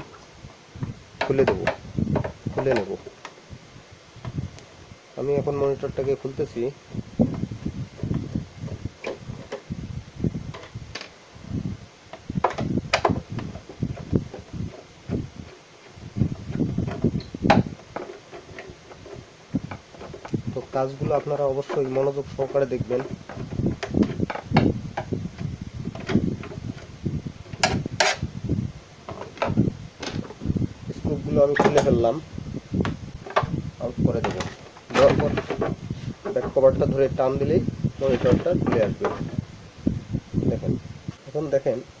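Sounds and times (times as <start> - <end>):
handling knocks: 1.2 - 3.4, 12.1 - 28.3, 29.0 - 32.2, 32.8 - 39.4
screwdriver scraping on plastic: 12.2 - 28.3.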